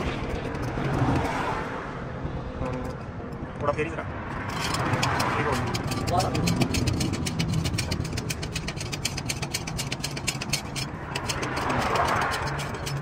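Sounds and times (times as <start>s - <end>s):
rapid even clicking: 4.3s - 13.0s
engine idling: 4.5s - 13.0s.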